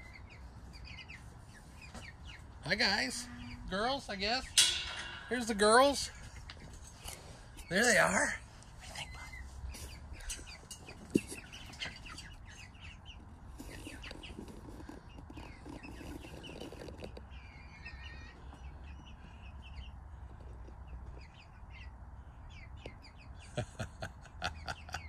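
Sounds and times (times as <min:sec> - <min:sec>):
hens clucking and cheeping: 0:00.0 - 0:25.0.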